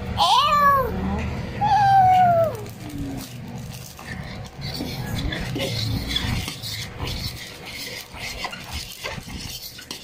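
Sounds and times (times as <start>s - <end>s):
fork scraping a bowl: 2.6s - 10.0s.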